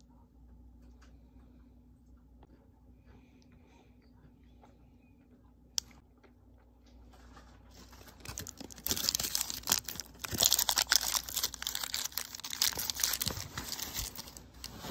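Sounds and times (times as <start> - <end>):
foil wrapper crinkling: 7.7 - 14.9.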